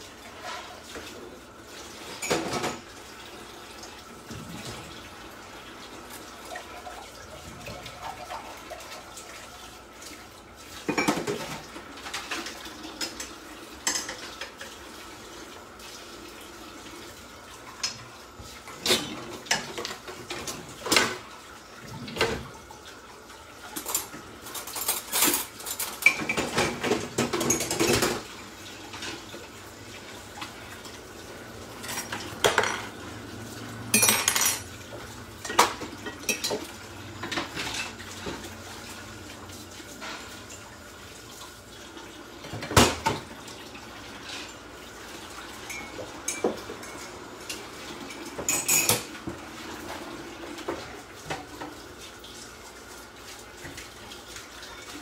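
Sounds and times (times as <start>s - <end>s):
pots dishes and cutlery clinking: 0.2s - 1.2s, 2.0s - 3.0s, 10.8s - 14.8s, 17.7s - 21.3s, 21.9s - 22.6s, 23.6s - 29.5s, 31.7s - 38.6s, 39.9s - 40.6s, 42.4s - 43.3s, 45.4s - 51.9s.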